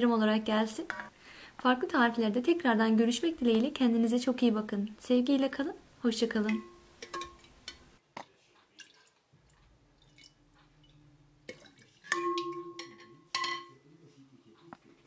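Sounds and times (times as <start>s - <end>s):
ladle clinking against glass jug: 6.6s - 7.8s, 11.5s - 13.8s.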